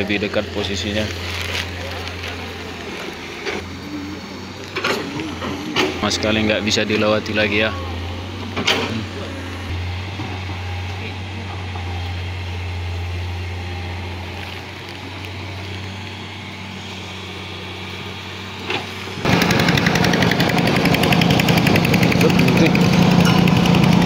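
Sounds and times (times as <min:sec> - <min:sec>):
close excavator engine running: 0:00.0 - 0:24.0
distant excavator engine hum: 0:00.0 - 0:24.0.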